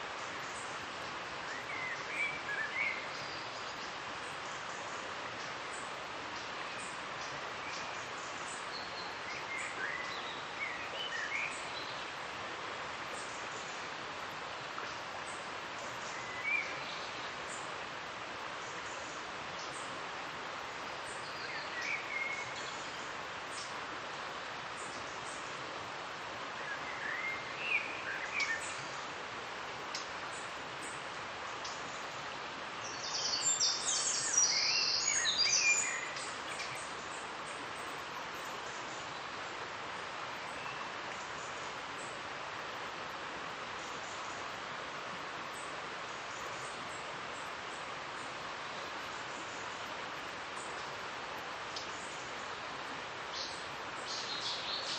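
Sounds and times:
river rushing: 0:00.0 - 0:54.9
songbird singing: 0:00.1 - 0:12.4, 0:14.7 - 0:17.8, 0:20.6 - 0:25.6, 0:26.5 - 0:29.2, 0:29.8 - 0:54.9
small birds chirping: 0:32.8 - 0:39.4, 0:45.4 - 0:54.9.

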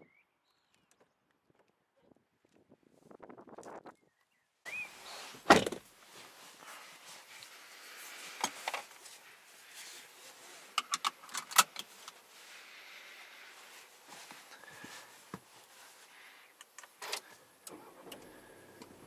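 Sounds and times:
car door shutting thud: 0:05.4 - 0:05.8.

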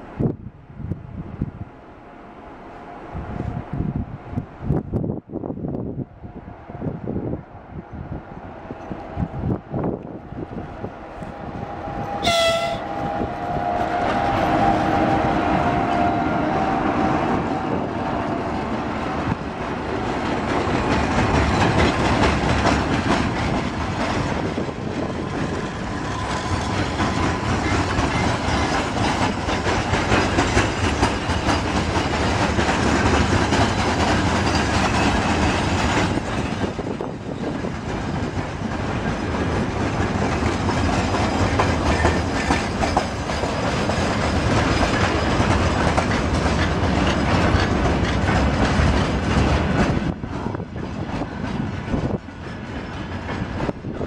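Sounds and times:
freight train rumbling past: 0:00.0 - 0:54.0
wheels clacking over rail joints: 0:17.0 - 0:54.0.

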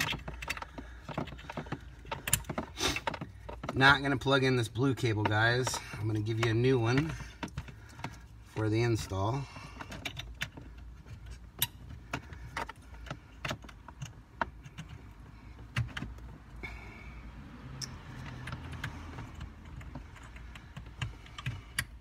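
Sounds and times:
plastic connectors clicking and rattling: 0:00.0 - 0:04.3.

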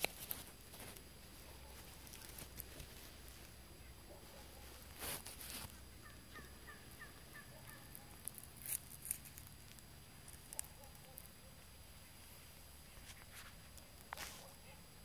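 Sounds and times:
rustling: 0:00.0 - 0:14.8
wild turkeys calling: 0:05.9 - 0:08.2.

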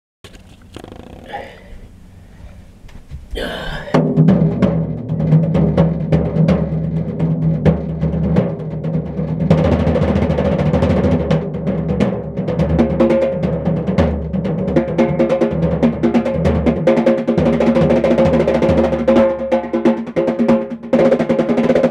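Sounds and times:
hand drum roll on snare and tom: 0:03.9 - 0:21.9.

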